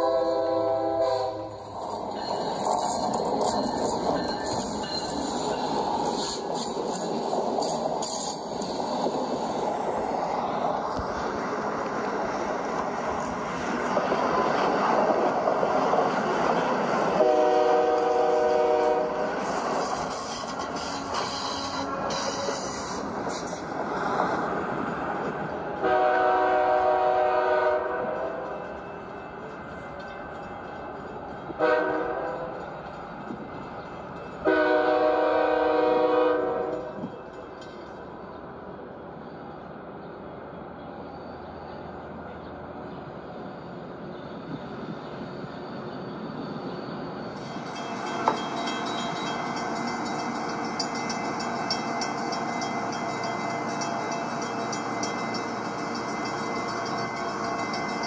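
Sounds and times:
train horn chord: 0.0 - 1.6, 17.2 - 19.2, 25.8 - 28.5, 31.6 - 32.5, 34.4 - 37.0
train rumbling and rattling: 0.0 - 58.0.

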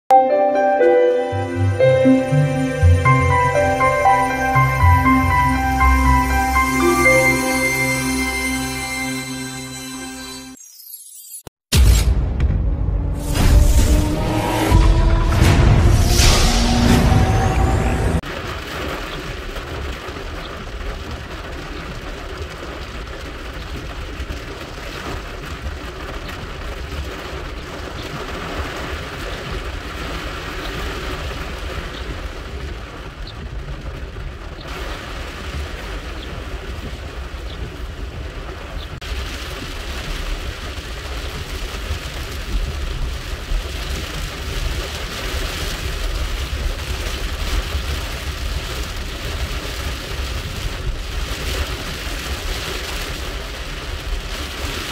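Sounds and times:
engine and road noise: 12.4 - 18.2
rain drumming on car roof: 18.2 - 54.9.

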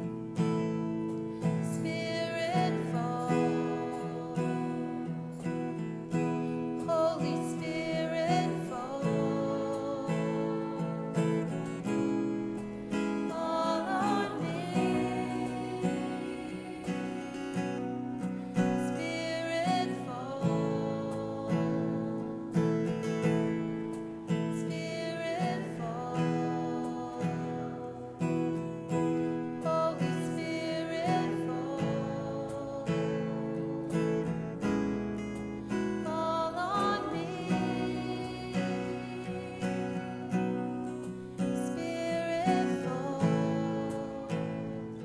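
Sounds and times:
acoustic guitar strumming: 0.0 - 45.0
person singing: 0.0 - 45.0.

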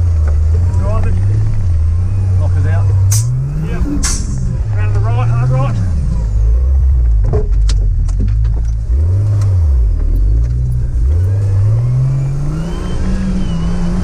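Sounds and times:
engine revving: 0.0 - 14.0
sharp knocks and clunks: 7.0 - 10.6.

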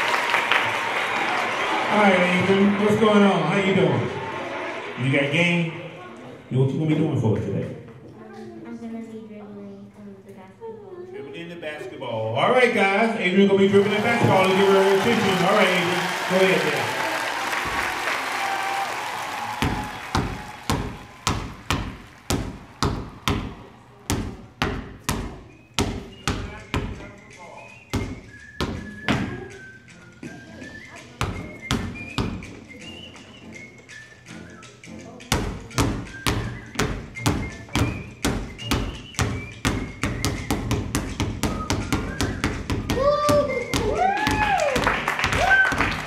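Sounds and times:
basketball bouncing on hard floor: 19.6 - 27.1, 35.3 - 44.4.

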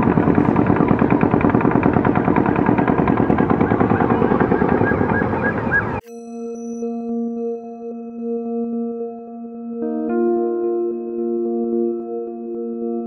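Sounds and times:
rapid automatic rifle fire: 0.0 - 5.4.

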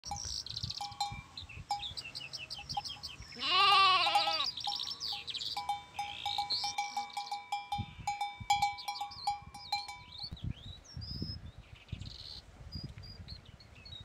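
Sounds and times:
birds singing and chirping: 0.1 - 14.0
sheep or goat bleating: 3.4 - 4.5.

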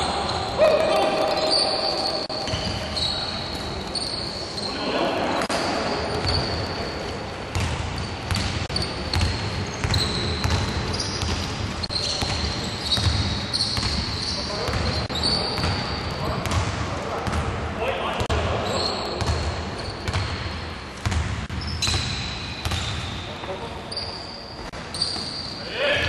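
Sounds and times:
players shouting: 0.0 - 3.1
sneakers squeaking on floor: 0.0 - 17.5, 18.2 - 25.7.

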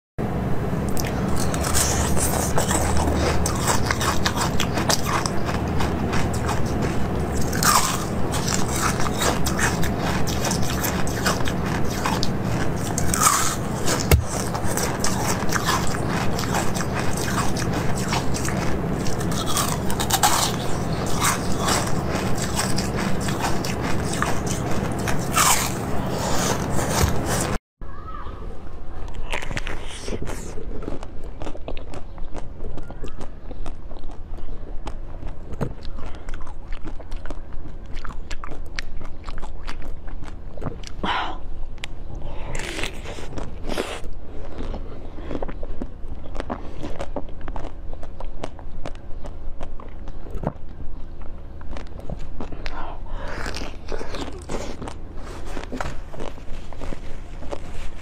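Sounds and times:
crunchy food being chewed: 0.8 - 27.6, 29.0 - 58.0.

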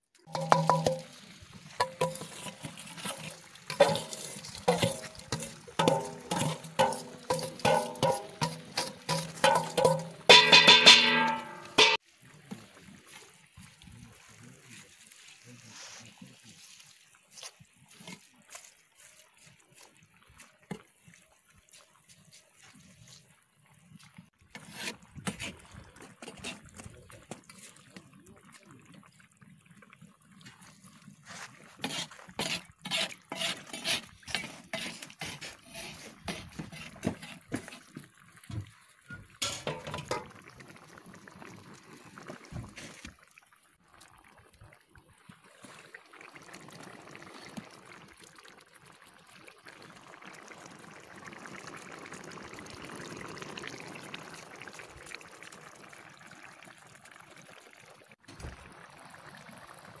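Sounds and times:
broth bubbling: 0.1 - 15.7, 19.1 - 60.0
liquid splashing and sloshing: 0.2 - 60.0.

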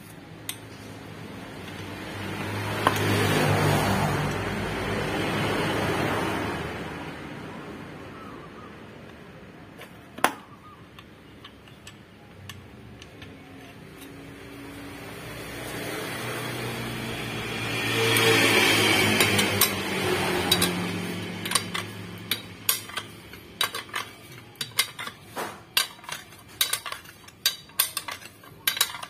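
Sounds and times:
vehicle passing by: 0.8 - 9.6, 13.6 - 24.4
small metallic clicks: 9.0 - 14.4, 20.4 - 29.0.

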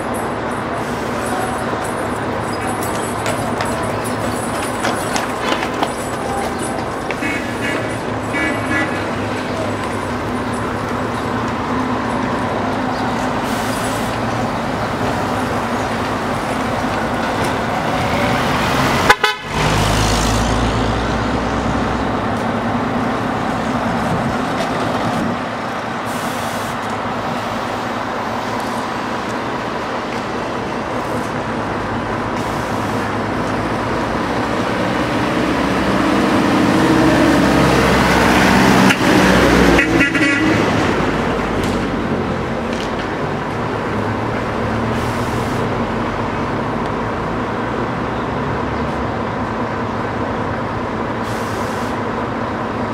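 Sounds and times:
minibus passing: 0.0 - 52.9
vehicle engines running: 0.0 - 52.9
car horns tooting: 2.5 - 9.6, 19.0 - 19.7, 39.7 - 40.7.

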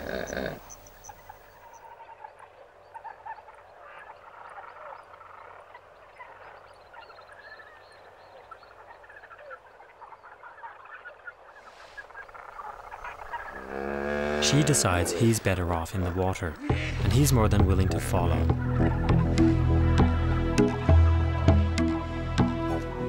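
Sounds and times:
croaking and chirping animal calls: 0.0 - 20.5.

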